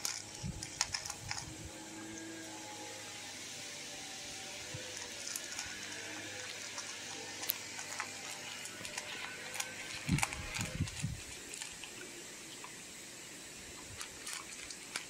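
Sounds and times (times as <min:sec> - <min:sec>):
dog crunching dry kibble: 0:00.0 - 0:01.8, 0:04.7 - 0:12.8, 0:13.7 - 0:15.0
steady hiss: 0:00.0 - 0:15.0.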